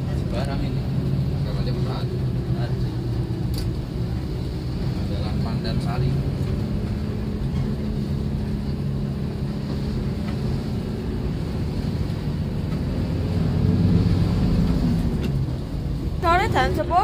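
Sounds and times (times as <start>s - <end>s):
bus engine and road noise: 0.0s - 17.0s.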